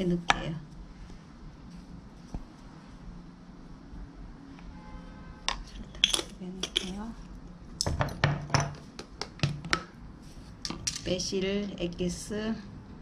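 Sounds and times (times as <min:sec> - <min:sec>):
spoon and jar clinking on glass bowl: 0:05.9 - 0:07.0.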